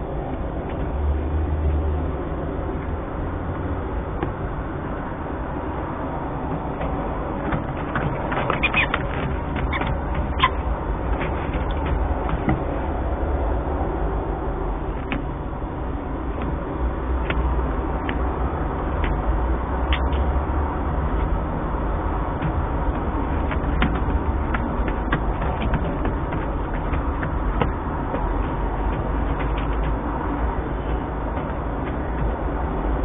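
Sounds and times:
low rumble and hiss: 0.0 - 33.0.

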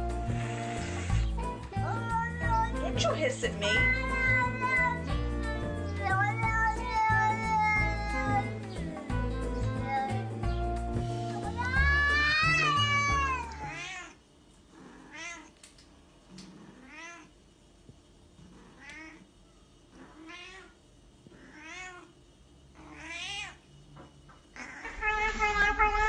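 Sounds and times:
cat long loud meow: 11.6 - 14.2, 24.6 - 26.0.

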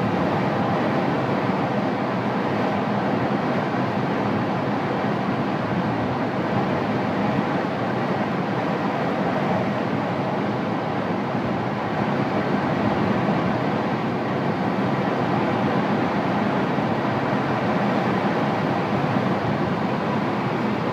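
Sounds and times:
airflow rushing over canopy: 0.0 - 20.9.

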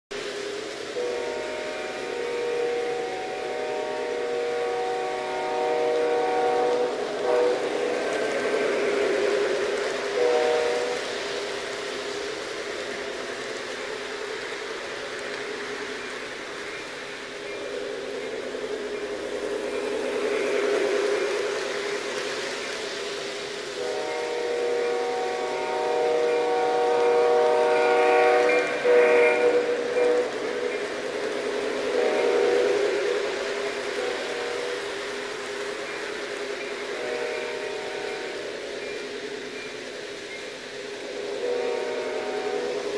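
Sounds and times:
locomotive running and rolling: 0.1 - 42.9
model trains rumbling on track: 0.1 - 42.9
model locomotive horn: 0.9 - 8.1, 10.1 - 11.2, 23.8 - 30.9, 31.9 - 33.1, 36.9 - 38.6, 41.4 - 42.9.

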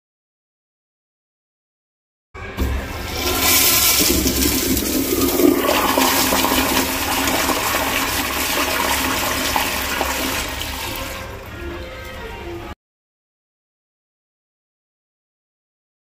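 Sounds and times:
toilet flushing: 2.6 - 11.8.

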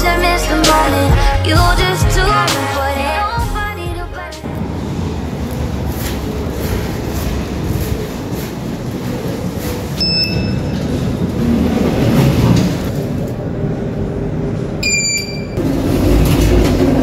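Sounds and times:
lift rumbling: 0.0 - 17.0
lift doors sliding: 4.4 - 13.6, 14.5 - 17.0.

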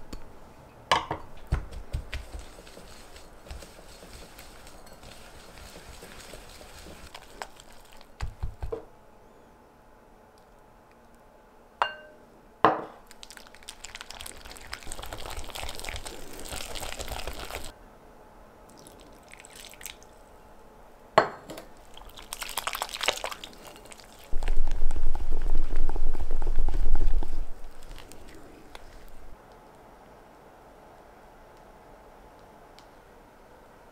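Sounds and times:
scraping and stirring in bowl: 1.2 - 8.7, 14.2 - 17.7
utensil clinking glass bowl: 2.3 - 7.5, 11.8 - 12.2
fast mixing with low rumble: 24.4 - 29.3.

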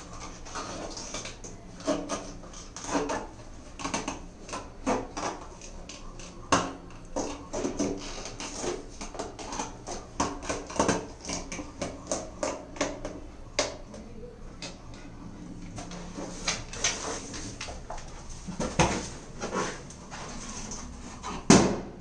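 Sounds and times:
balloon knock: 21.5 - 21.9.

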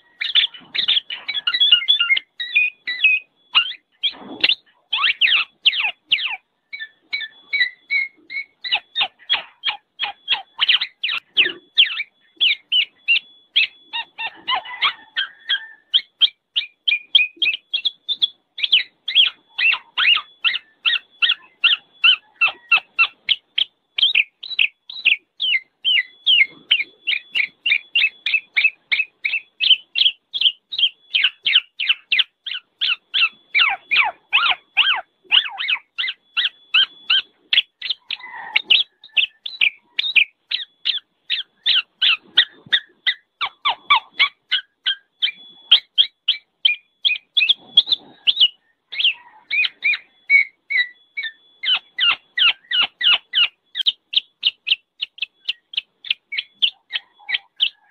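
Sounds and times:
oriole calling: 0.0 - 57.9.

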